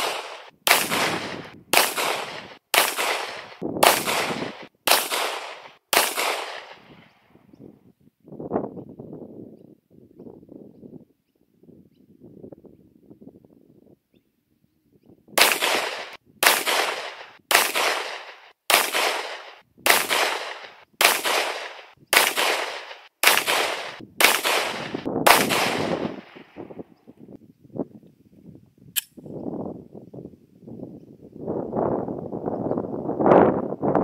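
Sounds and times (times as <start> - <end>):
pistol shots: 0.0 - 7.1, 15.4 - 26.6.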